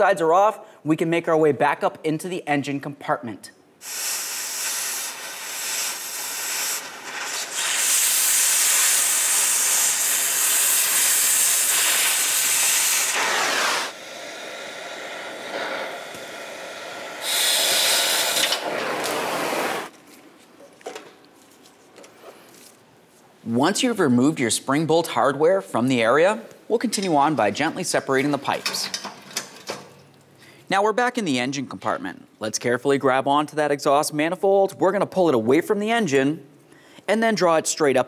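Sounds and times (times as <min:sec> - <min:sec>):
cutting torch hissing: 0:03.8 - 0:19.9.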